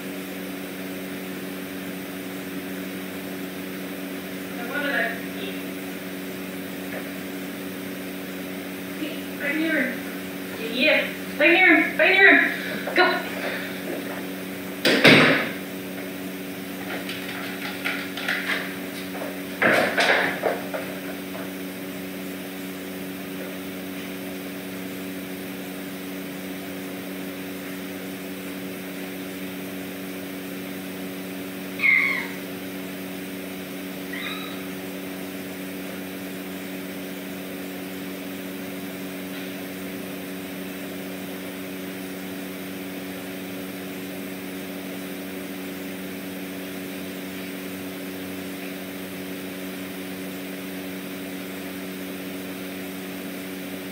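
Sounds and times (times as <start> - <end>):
steady low hum: 0.0 - 53.9
kitten meowing: 31.8 - 32.5, 34.1 - 34.7.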